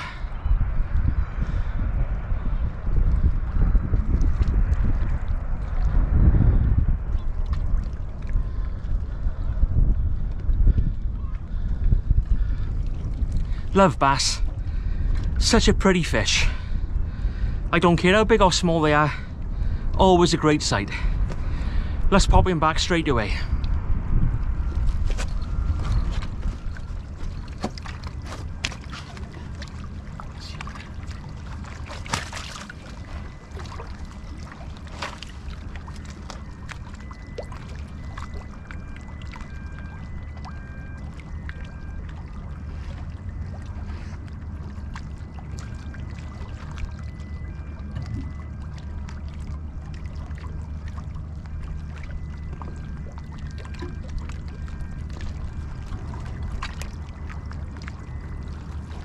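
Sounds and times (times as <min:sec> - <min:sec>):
low rumble: 0:00.0 - 0:59.0
water lapping on rocky shore: 0:24.5 - 0:59.0
small splashes: 0:24.7 - 0:59.0.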